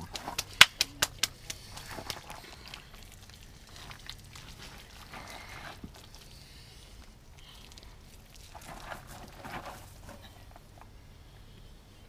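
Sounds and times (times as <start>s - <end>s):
shaker ticking: 0.0s - 3.3s.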